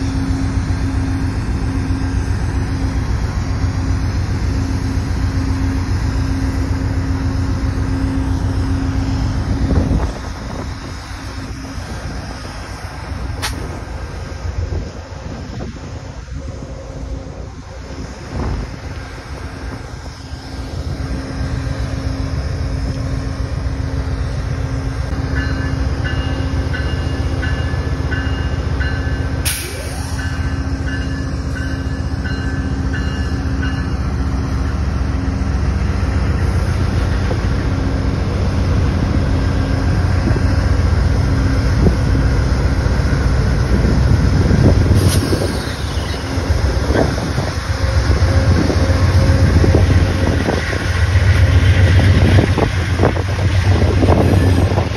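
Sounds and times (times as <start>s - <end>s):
train engine and wheels rumbling: 0.0s - 54.9s
locomotive bell ringing: 25.1s - 35.5s.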